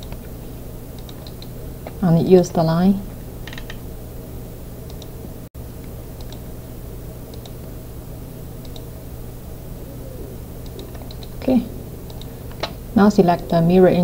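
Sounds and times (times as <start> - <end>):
recording hum and hiss: 0.0 - 14.0
computer mouse clicking: 1.0 - 1.5, 3.4 - 3.8, 4.9 - 5.1, 7.3 - 7.6, 8.6 - 8.9, 10.6 - 11.4, 12.1 - 12.8.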